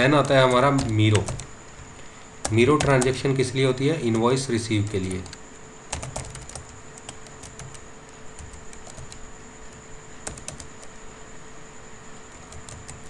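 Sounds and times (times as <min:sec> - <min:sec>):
keyboard keys clicking: 0:00.0 - 0:01.5, 0:02.4 - 0:03.2, 0:04.0 - 0:07.8, 0:08.4 - 0:09.2, 0:10.2 - 0:10.9, 0:12.3 - 0:13.0
faint steady hum: 0:00.0 - 0:13.0.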